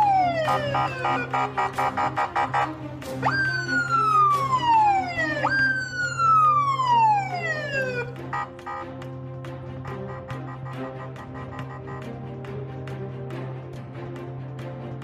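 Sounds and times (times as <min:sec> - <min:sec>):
police siren wailing: 0:00.0 - 0:09.1, 0:09.8 - 0:12.2.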